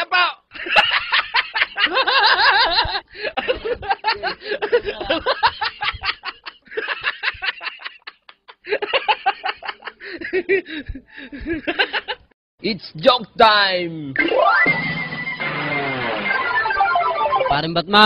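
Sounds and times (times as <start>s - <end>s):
people giggling and chuckling: 0.5s - 12.3s.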